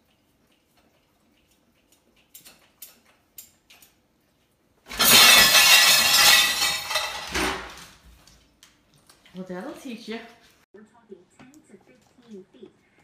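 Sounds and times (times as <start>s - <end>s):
dishes clinking: 4.9s - 7.7s
dishes crashing onto tile floor: 4.9s - 8.0s.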